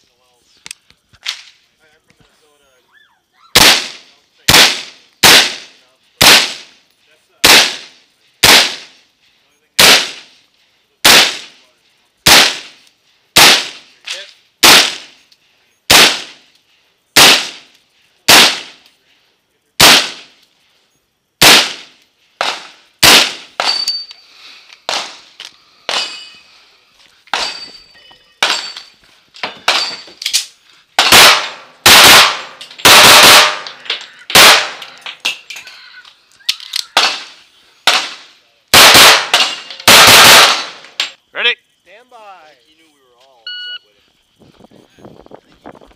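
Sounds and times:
rapid pistol shots: 3.6s - 6.8s, 7.4s - 9.0s, 9.8s - 10.4s, 11.0s - 11.6s, 12.2s - 12.8s, 13.4s - 13.9s, 14.6s - 15.2s, 15.9s - 16.4s, 17.2s - 17.7s, 18.3s - 18.8s, 19.8s - 20.4s, 21.4s - 23.8s, 31.0s - 34.9s, 37.0s - 41.0s
rifle shots: 3.6s - 6.8s, 7.4s - 9.0s, 9.8s - 10.4s, 11.0s - 11.6s, 12.2s - 12.8s, 13.4s - 15.2s, 15.9s - 16.4s, 17.2s - 17.7s, 18.3s - 18.8s, 19.8s - 20.4s, 21.4s - 23.8s, 31.0s - 35.0s, 37.0s - 41.2s
pings from steel targets: 21.8s - 24.3s, 24.9s - 36.0s, 38.8s - 41.2s.

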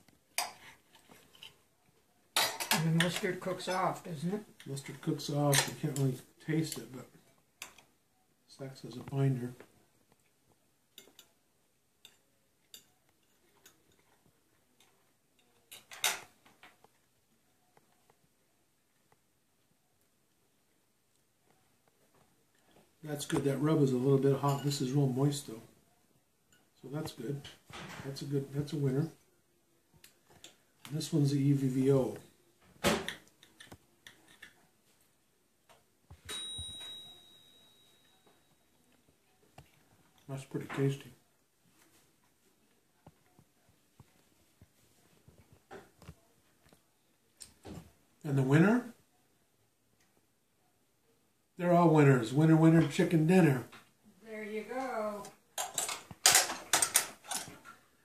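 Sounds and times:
ringing clink: 36.3s - 38.2s.

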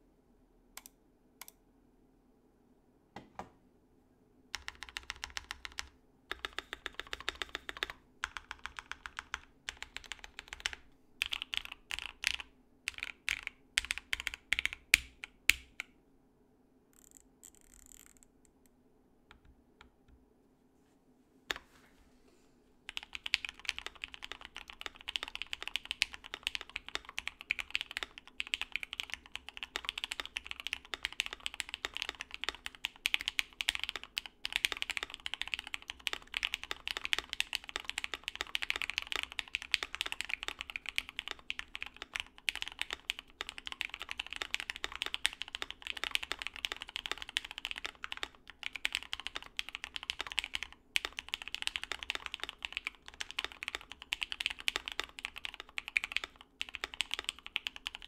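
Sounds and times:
fast mechanical keyboard typing: 4.6s - 15.8s, 22.9s - 58.0s.

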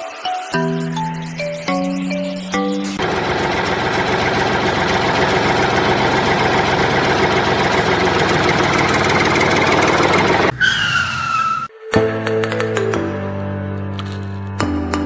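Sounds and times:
tractor engine idling: 0.9s - 10.5s.

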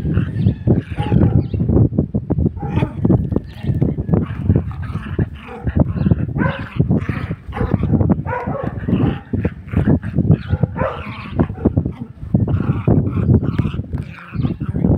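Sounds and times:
dog barking: 0.9s - 1.5s, 5.4s - 5.7s, 6.4s - 6.7s, 7.5s - 9.3s, 10.4s - 11.7s.

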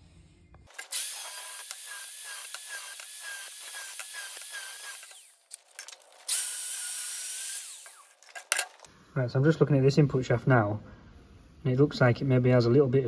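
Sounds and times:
angle grinder grinding metal: 0.7s - 8.9s.

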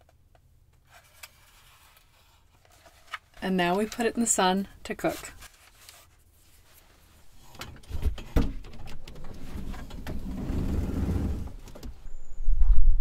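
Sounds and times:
rumbling rustle of movement: 5.4s - 12.0s.

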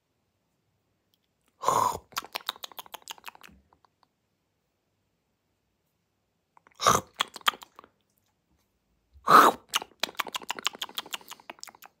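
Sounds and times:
dog lip-smacking and chewing: 2.1s - 4.0s, 7.1s - 7.9s, 9.7s - 12.0s.

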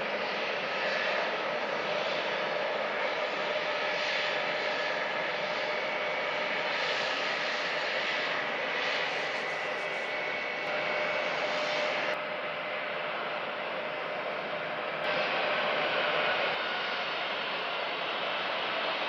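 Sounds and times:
jet engines idling: 0.0s - 19.0s.

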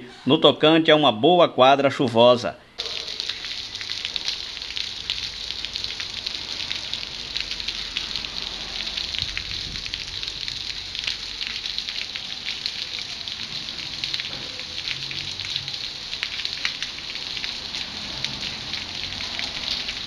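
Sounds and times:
raindrops ticking: 2.8s - 20.0s
steady rain hiss: 2.8s - 20.0s.

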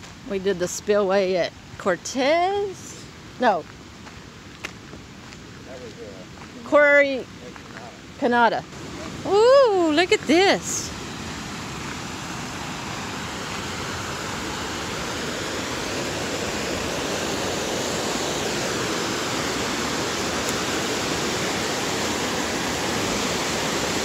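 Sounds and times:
water rushing over rocks: 8.7s - 24.0s.

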